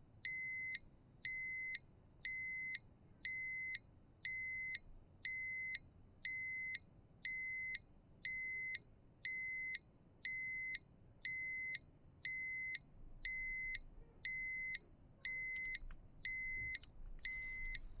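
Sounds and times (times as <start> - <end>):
steady high-pitched alarm tone: 0.0 - 18.0
low electronic beep: 13.3 - 18.0.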